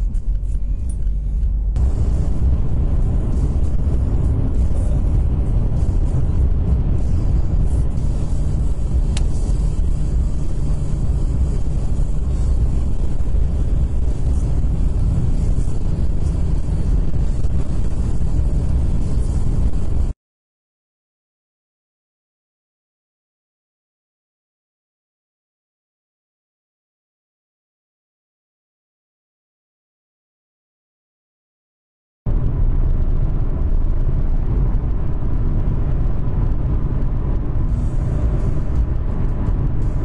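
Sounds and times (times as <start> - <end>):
road and wind rumble in car: 0.0 - 20.2, 32.3 - 40.0.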